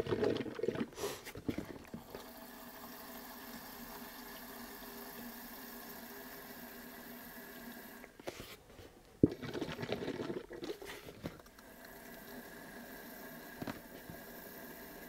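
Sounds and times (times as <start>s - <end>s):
liquid gurgling: 0.0s - 8.2s, 9.2s - 15.0s
liquid pouring into metal tank: 9.2s - 12.6s.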